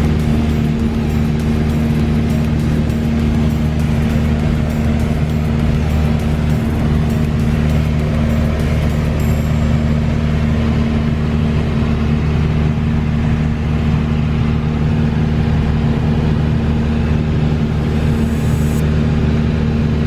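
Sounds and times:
small plane engine droning: 0.0 - 20.0.

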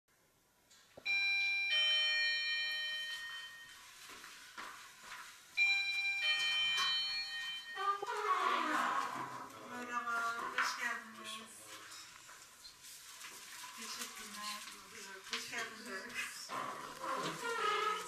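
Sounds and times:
two-note doorbell chime: 1.0 - 4.0, 5.6 - 8.1.

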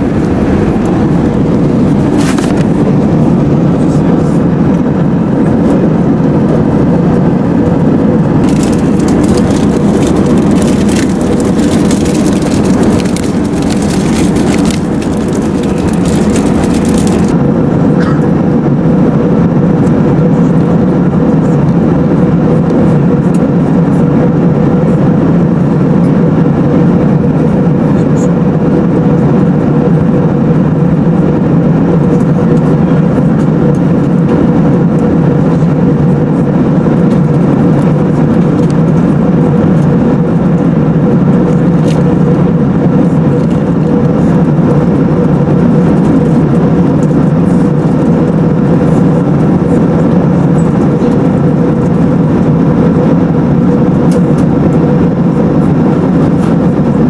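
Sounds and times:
rushing airflow: 0.0 - 23.2
jet engine drone: 0.0 - 57.0.

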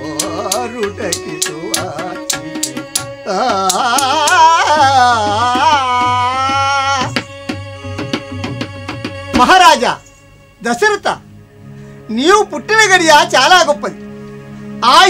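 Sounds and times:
percussion strokes: 0.0 - 10.4
wavering wordless singing: 0.0 - 11.3.

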